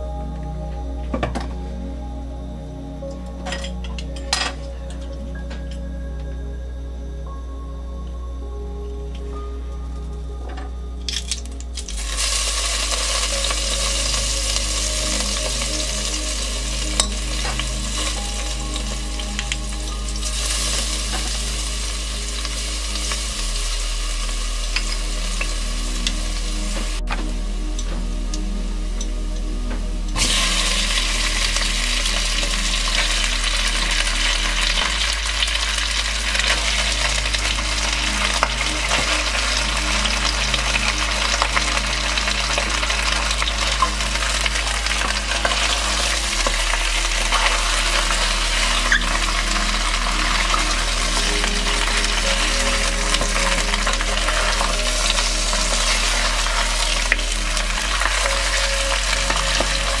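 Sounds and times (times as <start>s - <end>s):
meat sizzling in hot oil: 12.0s - 25.6s, 30.2s - 60.0s.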